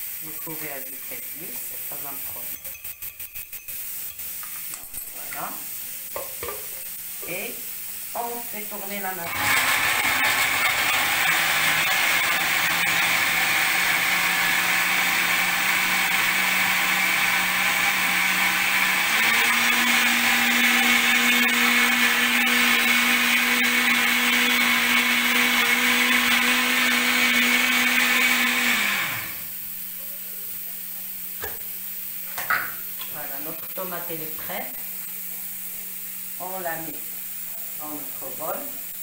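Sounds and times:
electric blender running: 8.2s - 29.6s.

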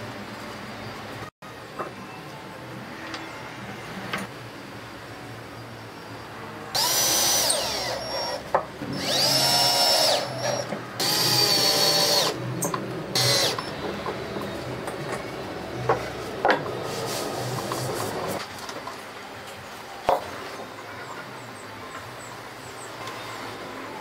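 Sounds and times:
cordless drill driving screws: 6.8s - 12.4s, 13.2s - 13.7s.

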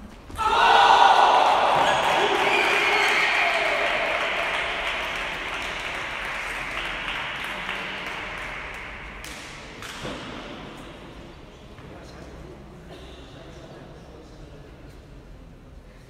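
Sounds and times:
spectators applauding: 1.1s - 9.0s.

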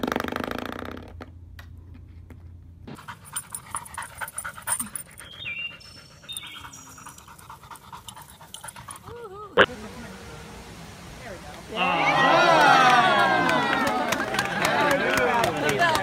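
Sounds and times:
dog panting: 2.9s - 9.2s.

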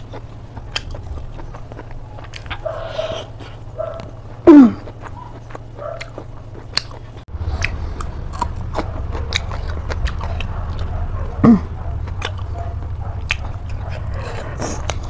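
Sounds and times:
person chewing and smacking: 0.0s - 15.0s
wet mouth clicks: 6.0s - 7.8s.

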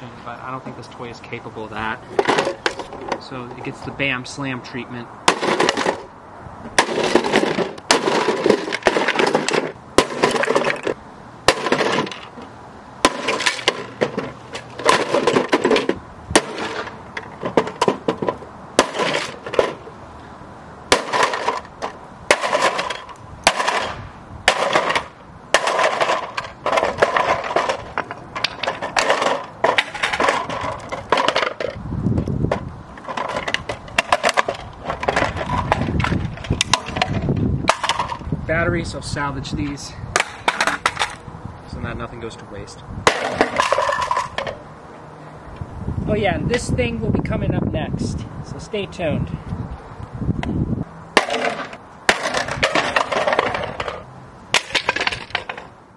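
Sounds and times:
hammer smashing plastic: 5.3s - 6.1s, 6.8s - 12.3s, 13.0s - 19.8s, 20.9s - 21.7s, 22.3s - 31.8s, 33.0s - 38.2s, 43.1s - 44.4s, 51.2s - 54.0s
broken plastic pieces clattering: 6.8s - 12.3s, 13.1s - 19.8s, 20.9s - 31.8s, 32.5s - 38.2s, 43.1s - 44.6s, 51.2s - 54.0s, 54.6s - 55.7s.

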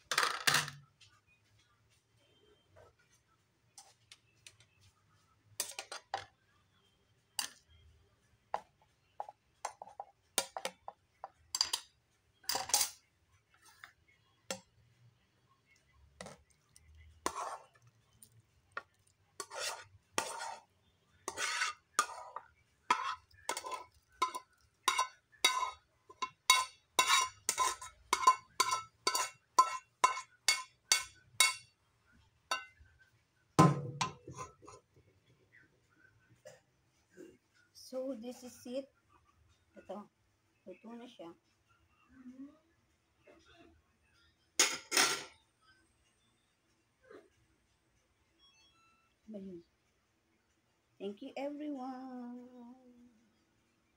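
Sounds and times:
utensil scraping metal frying pan: 17.2s - 17.8s, 19.4s - 31.6s.

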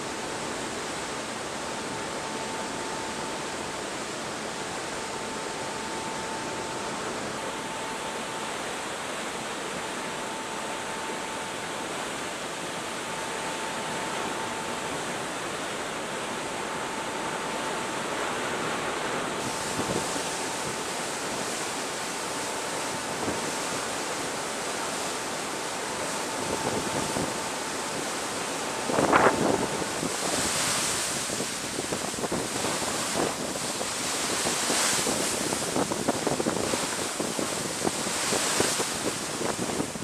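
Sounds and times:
ship wake rushing and churning: 0.0s - 40.0s
wind buffeting microphone: 28.8s - 40.0s.

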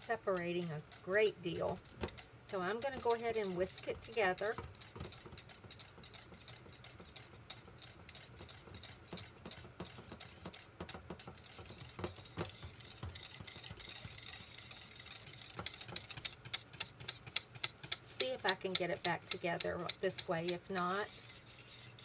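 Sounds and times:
wire whisk clicking in pot: 0.0s - 21.4s.

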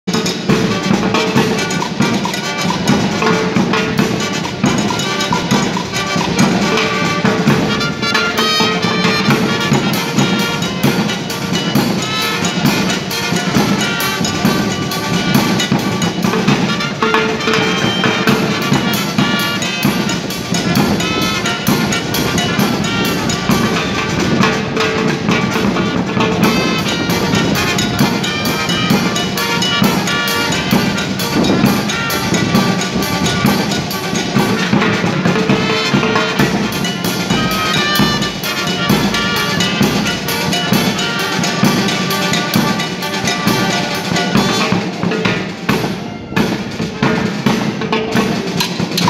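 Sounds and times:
drums keeping steady beat: 0.0s - 49.0s
saxophones and trumpets melody: 0.1s - 49.0s.

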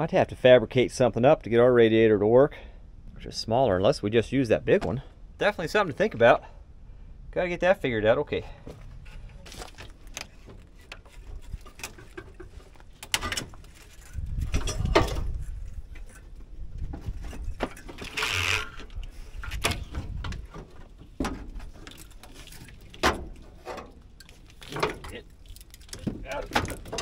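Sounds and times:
clicks and scrapes on metal parts: 9.5s - 16.4s.

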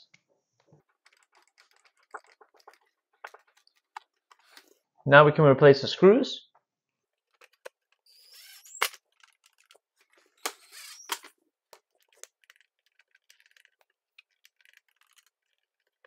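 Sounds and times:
drill click: 7.4s - 9.6s, 10.4s - 11.3s
cordless drill whirring: 8.0s - 9.0s, 10.4s - 11.3s.

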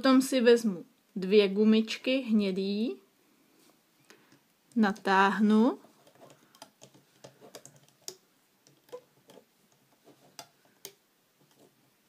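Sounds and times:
rubber bands clicking on pegs: 6.0s - 12.0s.

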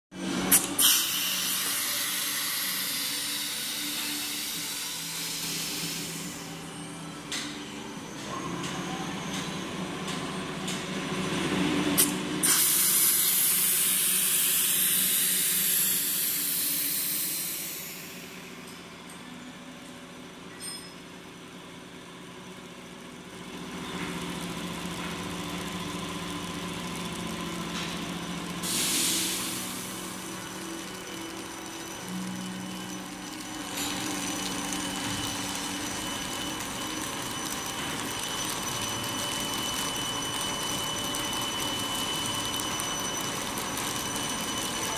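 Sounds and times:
steady motor hum: 0.2s - 44.9s
hissing bursts of air: 28.6s - 30.0s.

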